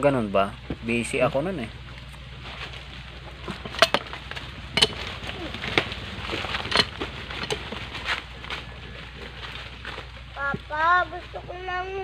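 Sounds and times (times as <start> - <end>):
wrench clinking on metal pipe: 3.6 - 4.2, 4.8 - 7.8.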